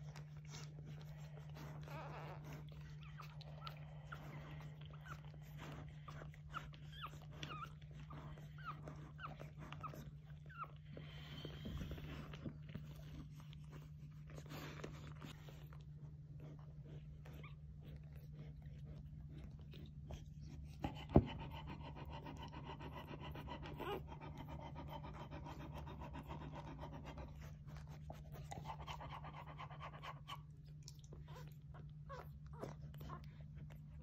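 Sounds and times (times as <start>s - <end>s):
puppies squeaking: 0.6s - 13.8s.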